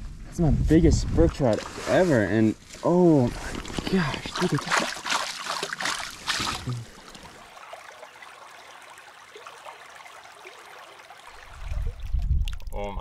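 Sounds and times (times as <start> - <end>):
stream water flowing: 1.4 - 12.8
fish splashing in a net: 3.3 - 8.1.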